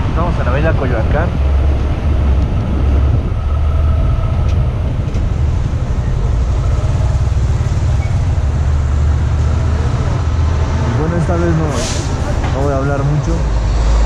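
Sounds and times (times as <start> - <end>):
motorcycle engine rumble: 0.0 - 11.1
wind buffeting microphone: 0.0 - 14.0.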